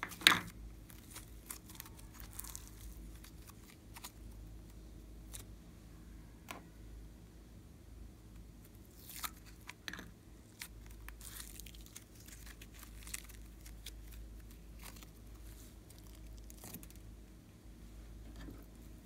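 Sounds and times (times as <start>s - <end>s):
slime crackling and popping: 0.9s - 4.2s, 10.5s - 17.0s.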